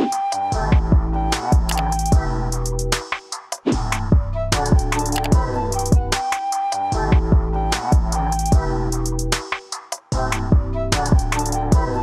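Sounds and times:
electronic music: 0.0s - 12.0s
kick drums and hi-hats: 0.0s - 12.0s
held bass line: 3.8s - 6.2s.

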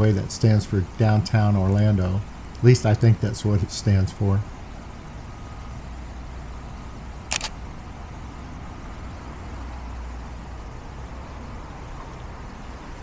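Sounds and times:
camera shutter click: 7.3s - 7.6s.

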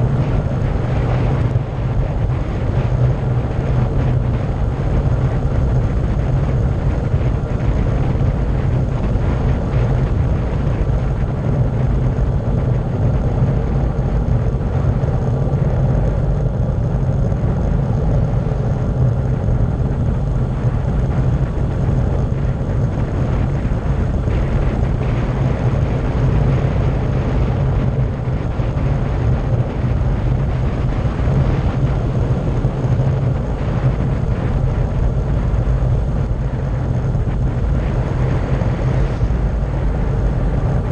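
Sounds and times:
tyre noise on road: 0.0s - 40.9s
wind rush on microphone: 0.0s - 40.9s.

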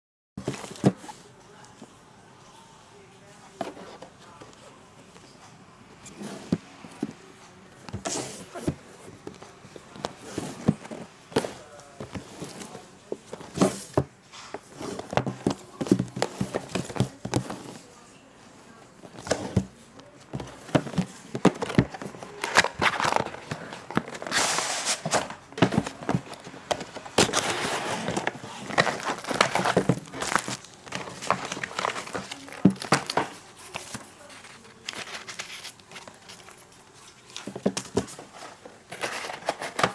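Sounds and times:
bubble wrap rustling and crinkling: 20.4s - 39.9s.

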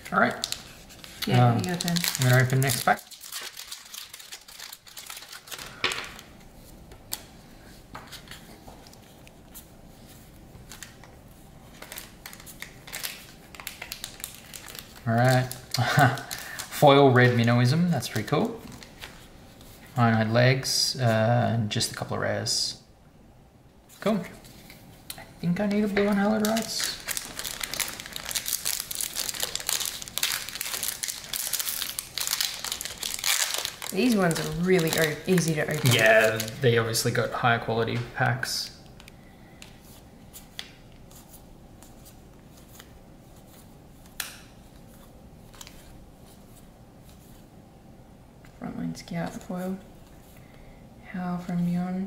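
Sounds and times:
foil wrapper crinkling: 0.2s - 6.3s, 11.7s - 19.2s, 25.7s - 37.2s.

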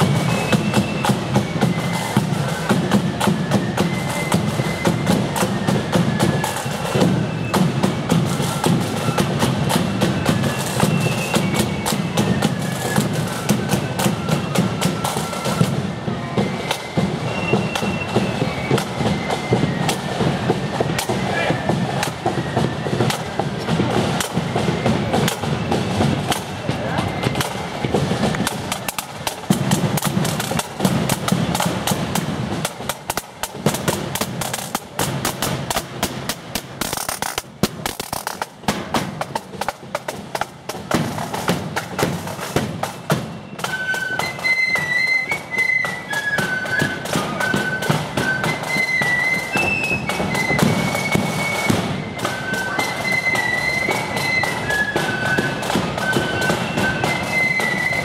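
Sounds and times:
flutes playing high melody: 0.0s - 37.6s, 40.4s - 58.0s
snare and bass drums: 0.0s - 58.0s.

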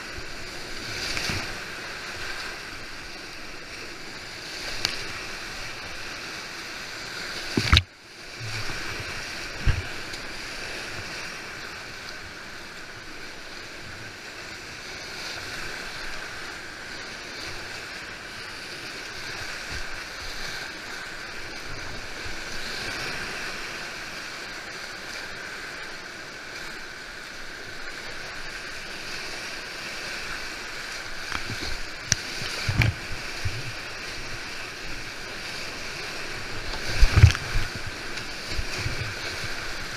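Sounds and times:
kayak knocks and splashes: 7.5s - 7.9s, 31.2s - 33.8s, 36.7s - 39.1s
whitewater rapids rushing: 15.3s - 39.9s.

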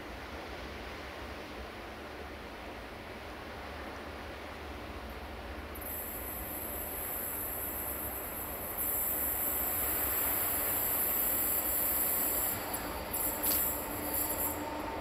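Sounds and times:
train rumble: 0.0s - 15.0s
high hiss: 5.7s - 15.0s.

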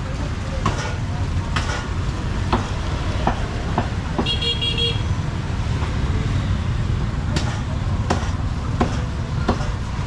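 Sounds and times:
sharp knocks: 0.6s - 4.4s, 7.3s - 9.8s
vehicle horn toot: 4.2s - 5.1s.

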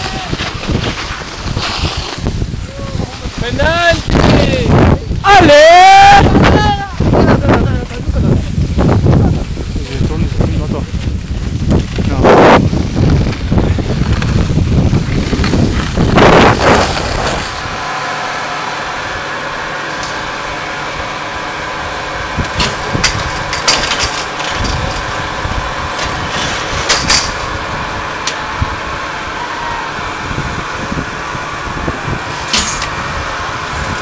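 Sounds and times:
wind buffeting microphone: 0.0s - 17.8s, 21.9s - 23.7s, 24.5s - 34.0s
ski lift machinery hum: 0.0s - 34.0s
sharp metallic clanks: 22.4s - 25.0s, 26.0s - 27.5s, 32.5s - 33.0s.

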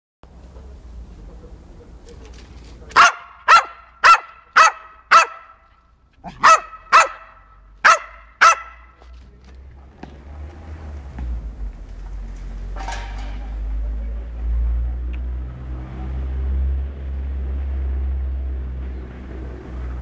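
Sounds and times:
dog barking: 2.9s - 5.6s, 6.2s - 9.0s.

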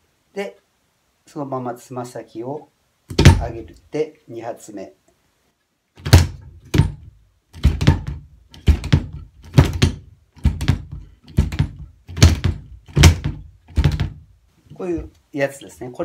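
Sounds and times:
kick drum pedal strokes: 3.1s - 3.8s, 6.0s - 16.0s.

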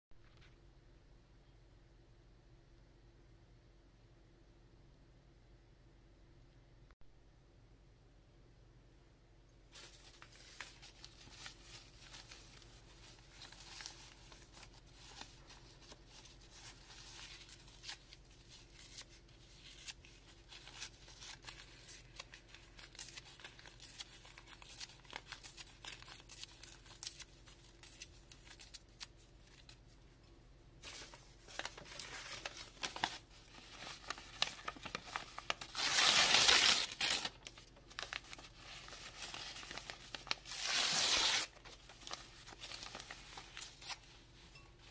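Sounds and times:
paper tearing: 30.9s - 44.1s.

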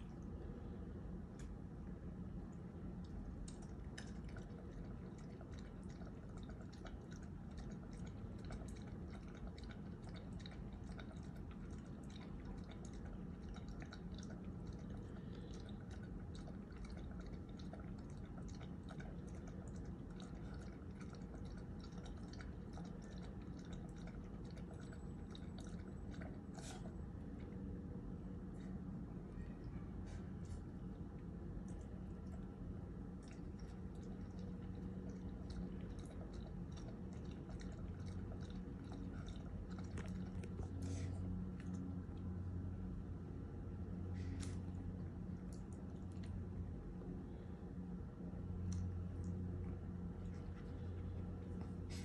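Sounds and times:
dog lapping water: 3.1s - 27.6s, 31.7s - 41.9s.

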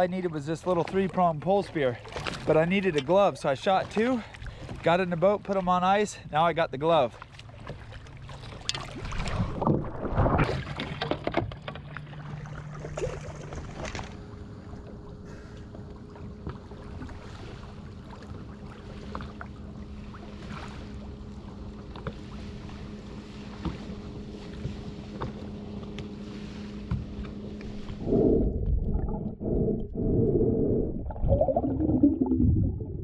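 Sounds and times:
water lapping against boat: 0.0s - 32.4s
steady low hum: 11.5s - 33.0s.

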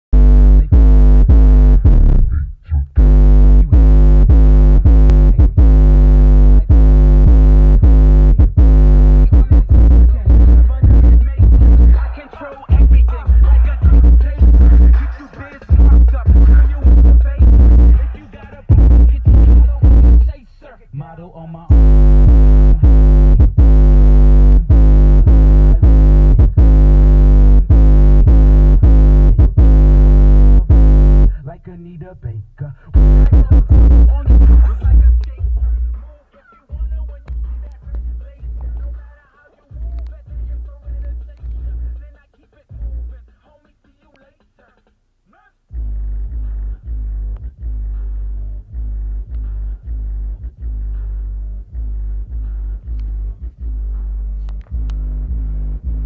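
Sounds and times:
bass-heavy electronic music: 0.0s - 43.6s, 45.7s - 56.0s
deep bass note hits: 0.2s - 12.0s, 12.7s - 15.0s, 15.7s - 18.0s, 18.7s - 20.3s, 21.7s - 31.4s, 33.0s - 36.0s, 45.8s - 56.0s.

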